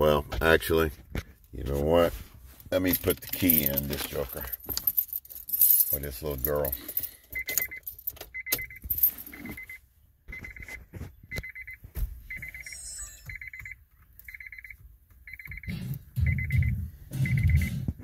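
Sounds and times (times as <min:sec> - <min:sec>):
keys clicking and jangling: 0:02.8 - 0:09.6
car key reminder chime beeping: 0:07.4 - 0:09.8, 0:11.4 - 0:16.7.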